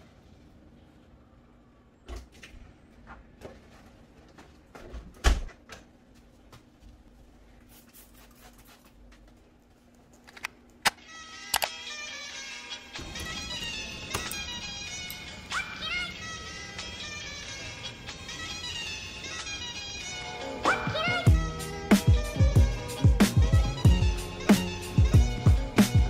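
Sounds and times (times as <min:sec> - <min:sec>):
faint steady hum: 0:00.0 - 0:04.8.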